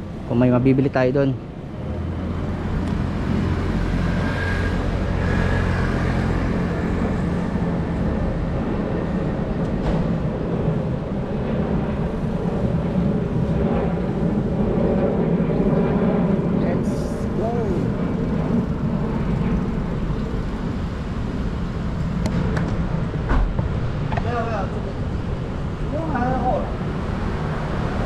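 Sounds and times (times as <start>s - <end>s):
road traffic: 0.0s - 28.0s.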